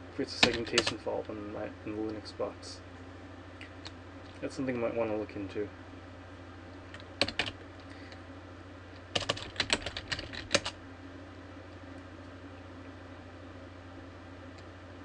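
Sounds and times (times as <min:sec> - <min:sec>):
faint low hum: 0:00.0 - 0:15.0
keyboard typing: 0:06.9 - 0:07.6, 0:09.1 - 0:10.8.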